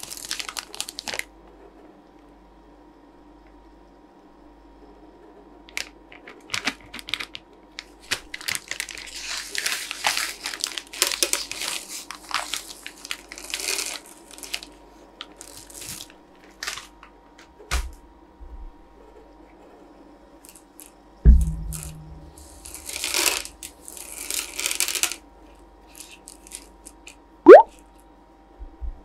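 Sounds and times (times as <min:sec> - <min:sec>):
plastic bag crinkling and tearing: 0:00.0 - 0:01.3, 0:05.8 - 0:16.9, 0:22.4 - 0:25.2, 0:25.9 - 0:27.0
thump: 0:21.3 - 0:22.4.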